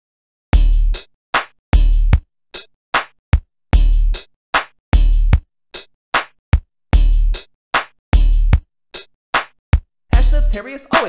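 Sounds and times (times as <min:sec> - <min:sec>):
hip hop beat: 0:10.1 - 0:11.0.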